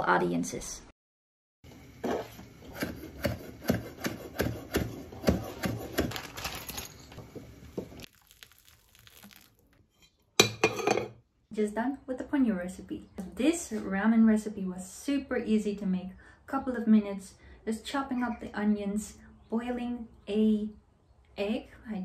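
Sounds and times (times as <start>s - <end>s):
knife chopping on wooden board: 2.7s - 6.2s
water pouring from kettle: 7.9s - 9.8s.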